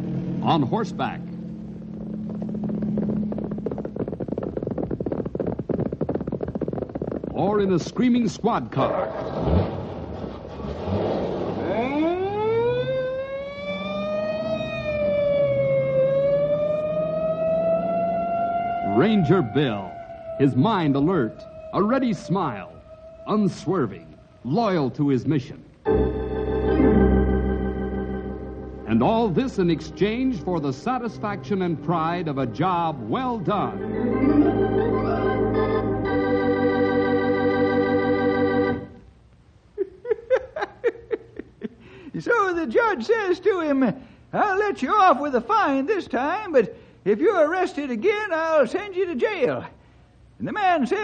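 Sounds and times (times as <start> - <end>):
low steady hum: 0.0 - 51.0
police siren wailing: 11.6 - 25.0, 25.9 - 39.0
organ chord with vibrato: 25.9 - 39.0.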